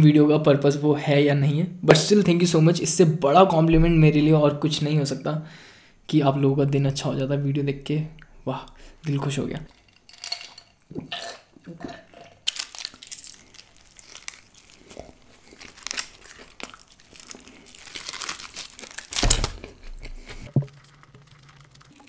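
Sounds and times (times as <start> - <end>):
chewing: 12.2 - 22.0
foil crinkling and tearing: 12.4 - 21.6.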